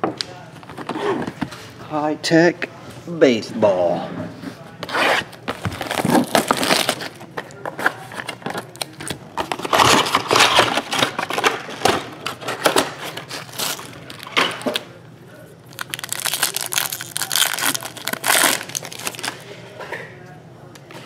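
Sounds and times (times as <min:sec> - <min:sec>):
plastic wrap crinkling: 0:05.5 - 0:14.8, 0:15.6 - 0:19.5.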